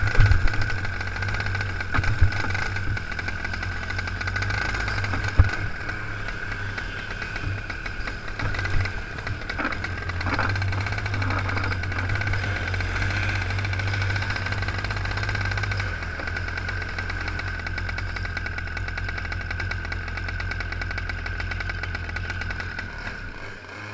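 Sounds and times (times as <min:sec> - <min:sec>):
kart engine running at low revs: 0:00.0 - 0:23.9.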